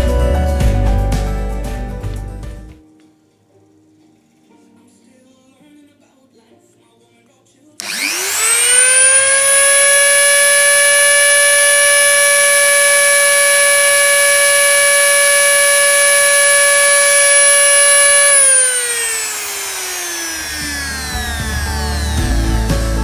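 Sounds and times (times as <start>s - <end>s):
rotary tool whining: 7.8s - 23.0s.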